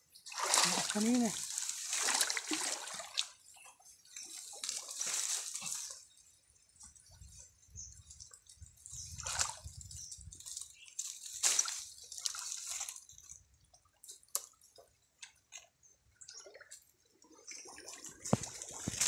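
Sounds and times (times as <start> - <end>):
stream water sloshing and splashing: 0.0 - 19.0
small drips and clicks: 6.8 - 19.0.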